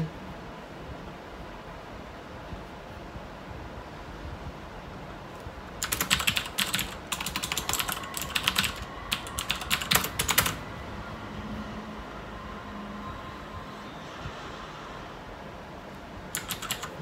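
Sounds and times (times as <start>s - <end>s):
typing on computer keyboard: 5.8s - 10.6s, 16.3s - 17.0s.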